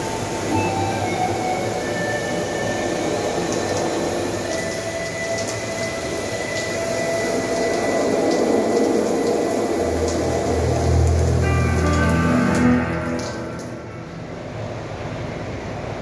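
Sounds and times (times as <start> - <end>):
shower water on tiled floor: 0.0 - 16.0
low hum: 9.8 - 15.7.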